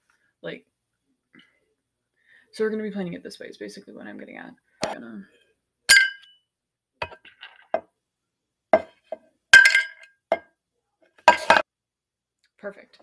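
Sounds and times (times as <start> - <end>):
metal can clinking: 5.9 - 6.4, 9.6 - 10.4, 11.2 - 11.6.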